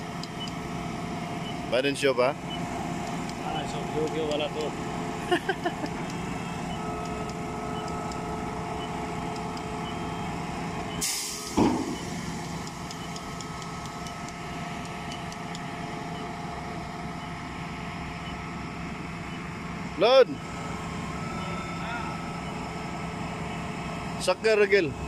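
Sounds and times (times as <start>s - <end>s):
concrete pump running: 0.1s - 18.0s
hissing air burst: 11.0s - 12.3s.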